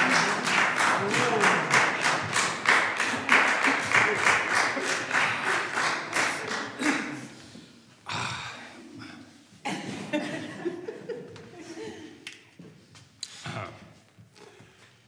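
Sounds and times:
audience clapping: 0.0s - 7.4s.

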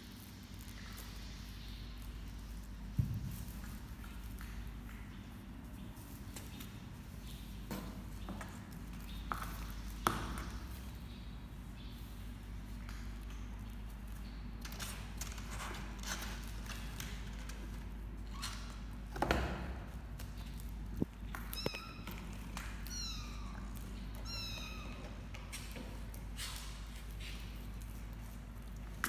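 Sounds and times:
kittens scuffling: 0.0s - 29.0s
kittens mewing: 22.9s - 25.0s.

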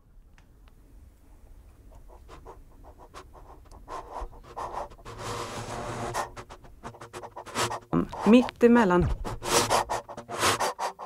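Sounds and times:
electroacoustic scratching and clicking: 3.0s - 11.0s.

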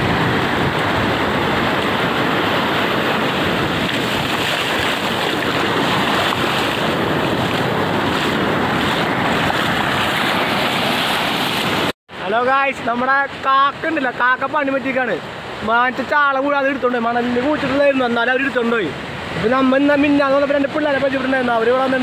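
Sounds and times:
wind on microphone: 0.0s - 11.9s
waves breaking on beach: 0.0s - 22.0s.

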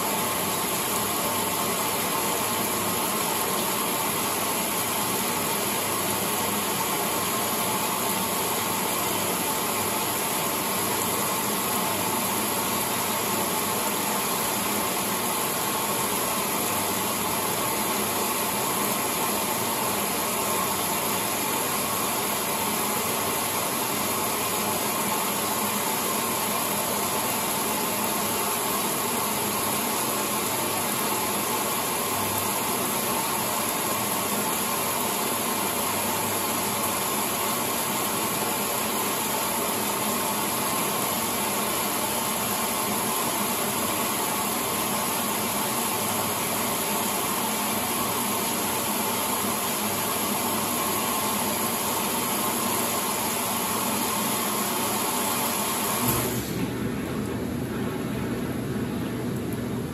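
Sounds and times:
washing machine running: 0.0s - 59.9s.

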